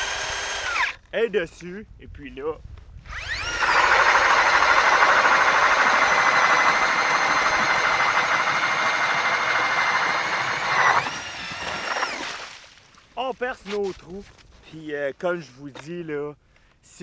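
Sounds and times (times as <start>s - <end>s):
drill motor whine boring ice: 0.0s - 1.0s, 3.1s - 12.4s.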